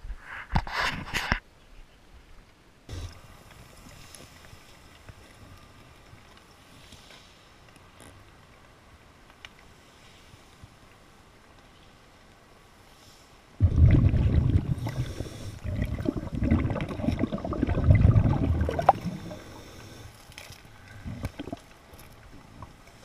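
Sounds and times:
breath bubbling underwater: 0:13.6 - 0:20.1, 0:20.9 - 0:21.7.

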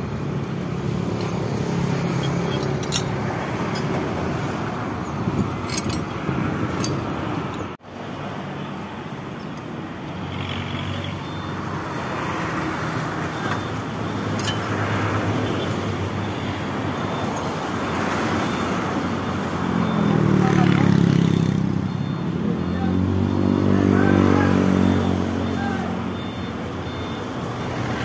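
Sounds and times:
street traffic: 0:00.0 - 0:28.0.

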